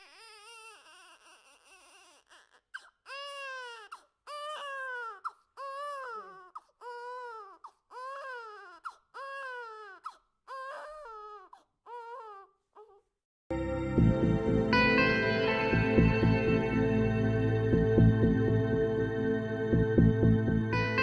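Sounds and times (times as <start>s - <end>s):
baby crying: 0.0s - 13.1s
music: 13.5s - 21.0s.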